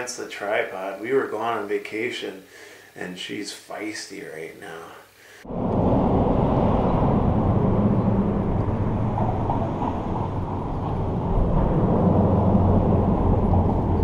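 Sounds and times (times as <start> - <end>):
muffled traffic rumble: 5.4 - 14.0.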